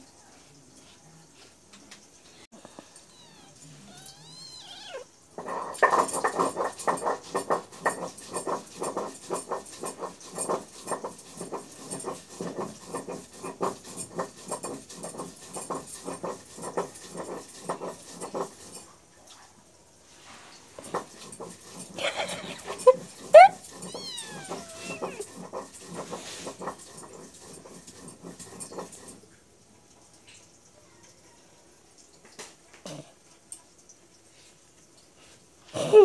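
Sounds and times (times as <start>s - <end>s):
kittens making rapid rhythmic sound: 2.7s - 18.8s, 20.8s - 29.1s.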